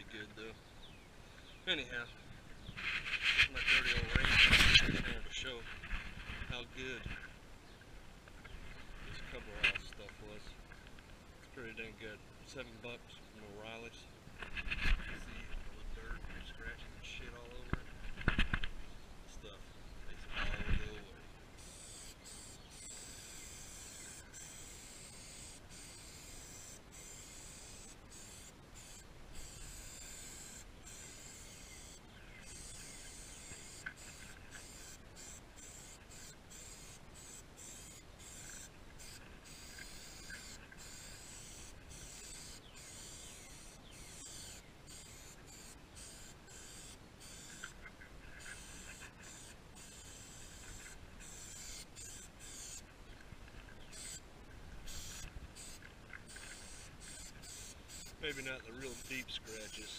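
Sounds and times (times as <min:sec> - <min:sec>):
aerosol can spraying: 0:21.7 - 0:47.7, 0:48.4 - 0:52.8, 0:54.9 - 0:59.9.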